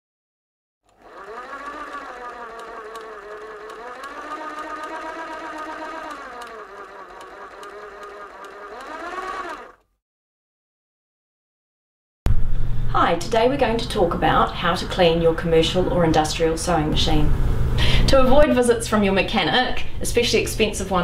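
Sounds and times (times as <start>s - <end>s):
sewing machine running: 0.9s - 9.9s.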